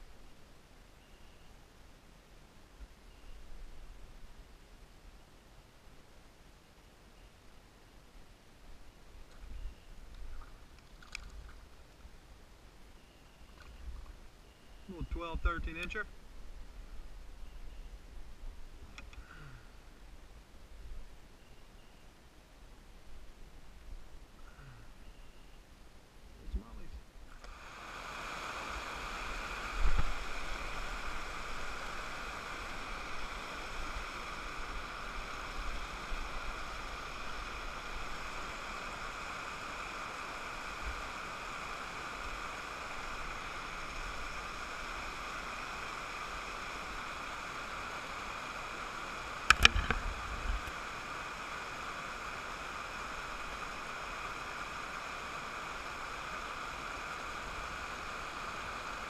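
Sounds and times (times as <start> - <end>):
water rushing over waterfall: 27.4 - 59.0.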